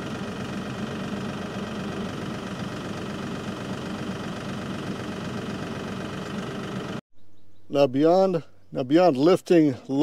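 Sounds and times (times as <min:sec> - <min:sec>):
tractor diesel engine idling: 0:00.0 - 0:07.0.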